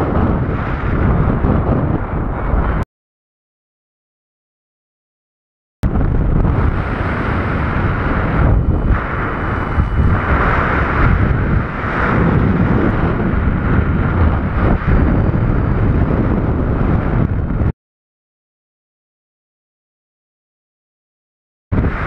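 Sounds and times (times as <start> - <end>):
wind buffeting microphone: 0.0 - 2.8, 5.8 - 17.7, 21.7 - 22.0.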